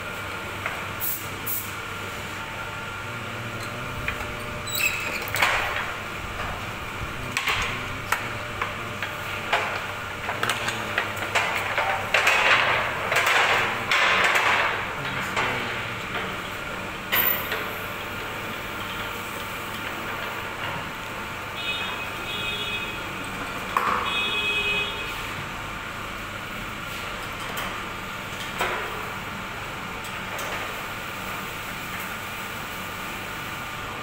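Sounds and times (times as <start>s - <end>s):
machine hum: 0.0s - 23.6s.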